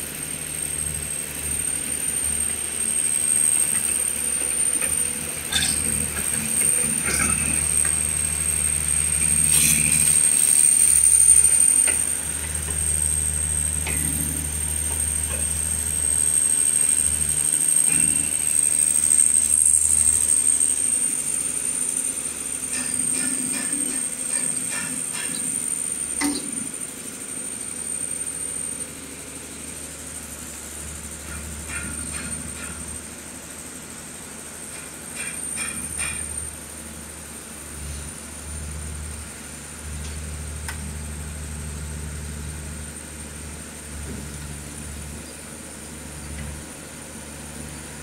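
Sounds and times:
high-pitched whine: 0.7 - 26.9.

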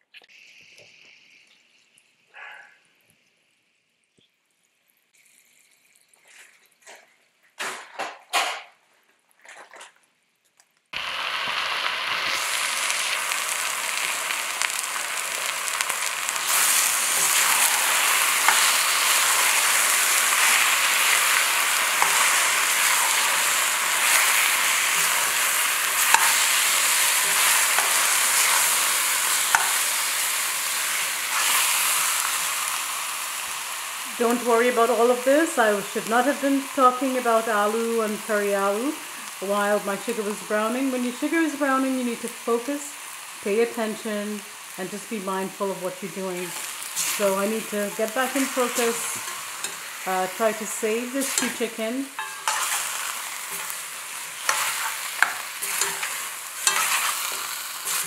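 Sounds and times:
chicken sizzling in a pot: 0.3 - 2.6, 11.0 - 58.0
spoon stirring and clicking on pot: 26.0 - 26.4, 29.5 - 29.8, 52.2 - 52.8, 54.5 - 58.0.

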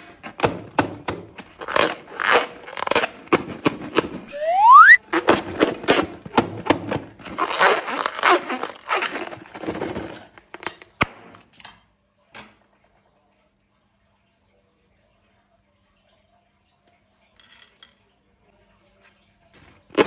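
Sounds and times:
slime and balloon crinkling squishing: 1.4 - 4.9, 7.3 - 9.4.

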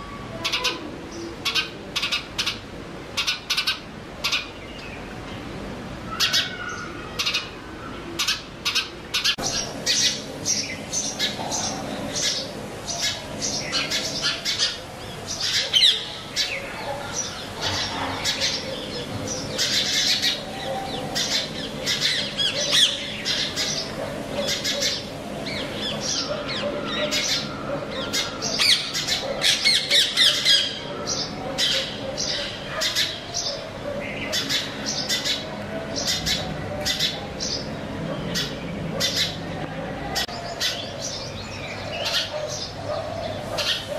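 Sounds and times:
sparrows chirping: 0.0 - 43.9.

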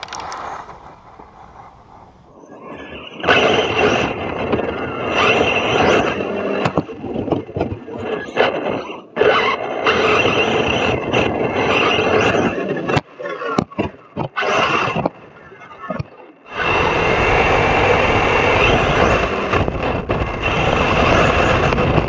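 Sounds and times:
rc truck motor whine: 0.0 - 2.3, 16.5 - 22.0.

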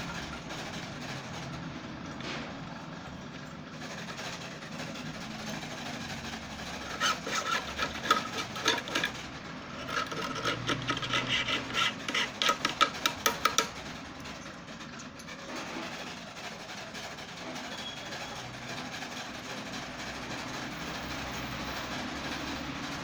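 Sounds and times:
hand file scraping a key: 6.6 - 13.8.

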